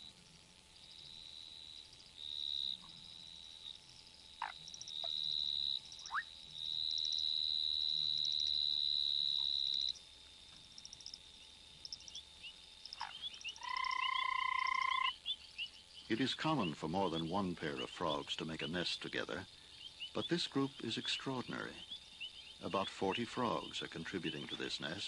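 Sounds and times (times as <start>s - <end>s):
frogs pulsed calls: 0.0s - 25.0s
frog high trill: 13.0s - 15.2s.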